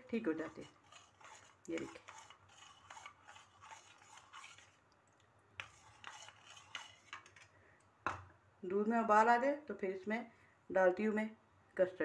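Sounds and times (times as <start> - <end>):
spoon scraping plastic bowl: 0.0 - 4.9, 5.6 - 7.6.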